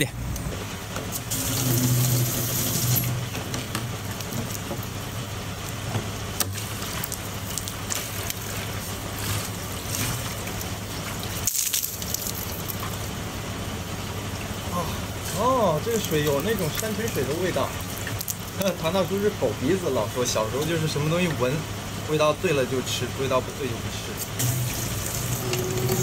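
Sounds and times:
water running into plastic can: 0:01.1 - 0:05.1, 0:15.3 - 0:18.8, 0:24.2 - 0:26.0
water splashing on metal grate: 0:01.1 - 0:13.2, 0:14.3 - 0:19.3, 0:24.2 - 0:26.0.

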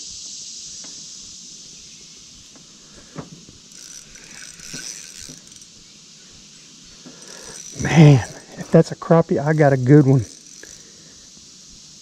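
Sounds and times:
insects droning: 0:00.0 - 0:12.0
fishing reel whirring: 0:02.8 - 0:12.0.

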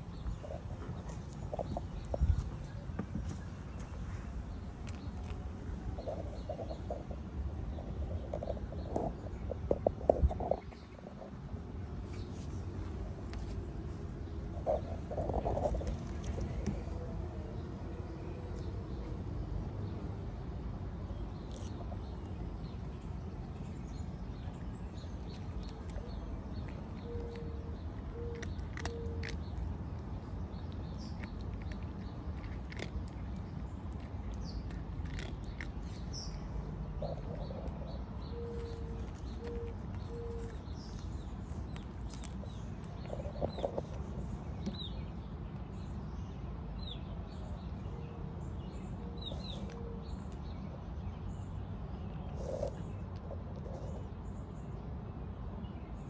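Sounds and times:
birds chirping: 0:00.0 - 0:19.2, 0:21.1 - 0:54.8
cat crunching dry kibble: 0:00.1 - 0:17.3, 0:21.1 - 0:45.7.

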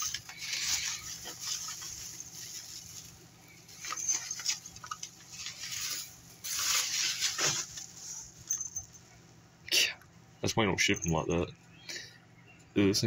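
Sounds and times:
bubble wrap crinkling: 0:00.0 - 0:08.8.

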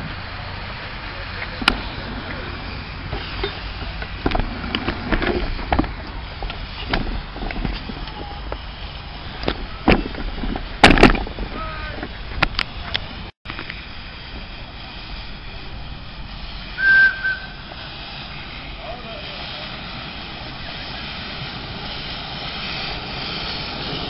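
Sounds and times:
sharp clicks and knocks: 0:09.4 - 0:13.8.

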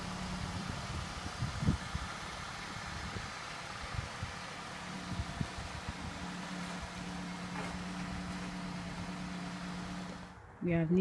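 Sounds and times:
car engine idling: 0:00.0 - 0:10.6.

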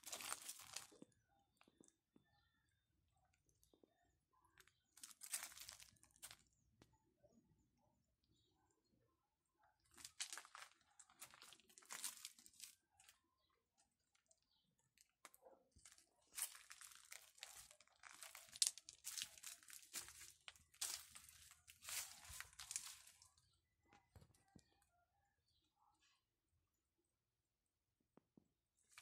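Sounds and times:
footsteps crunching on leaves: 0:00.0 - 0:00.9, 0:05.0 - 0:06.4, 0:16.4 - 0:23.2.

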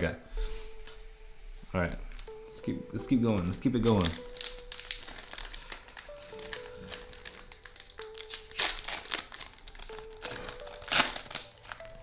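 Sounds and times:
soft background music: 0:00.0 - 0:12.0
foil pack crinkling: 0:03.4 - 0:12.0.

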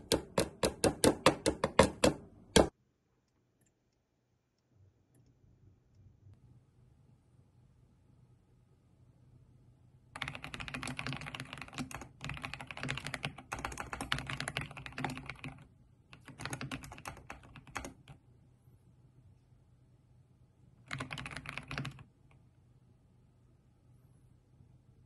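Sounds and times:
fast keyboard typing: 0:00.0 - 0:02.7, 0:10.2 - 0:18.2, 0:20.8 - 0:22.1.

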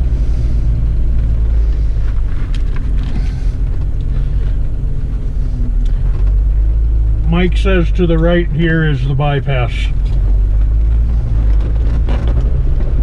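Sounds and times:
vehicle engine rumbling: 0:00.0 - 0:13.0
knocks and rattles: 0:10.1 - 0:13.0.

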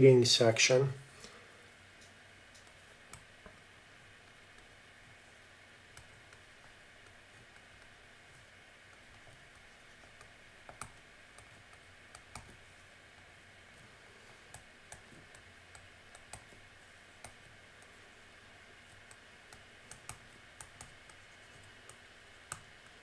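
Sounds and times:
faint steady hiss: 0:00.0 - 0:23.0
stylus tapping on tablet: 0:08.9 - 0:12.6, 0:14.4 - 0:17.9.

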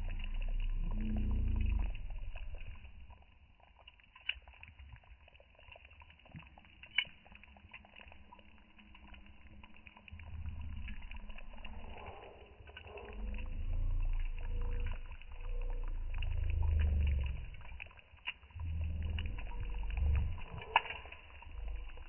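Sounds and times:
low rumble: 0:00.0 - 0:03.3, 0:08.7 - 0:18.0, 0:18.6 - 0:22.0
fire popping: 0:00.0 - 0:22.0
pot simmering: 0:00.0 - 0:22.0
wood fire crackling: 0:00.0 - 0:22.0.

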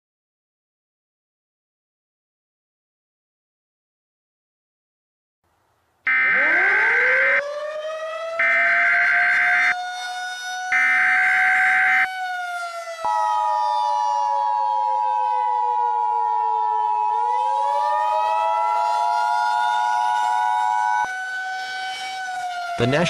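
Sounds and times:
civil defense siren wailing: 0:06.1 - 0:23.0.

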